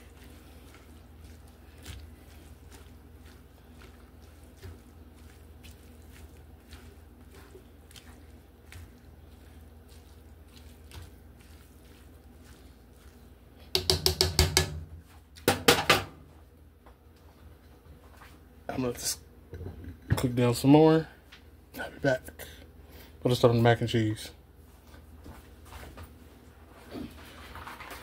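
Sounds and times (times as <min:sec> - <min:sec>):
spatula clattering against pan: 0:13.7 - 0:14.9.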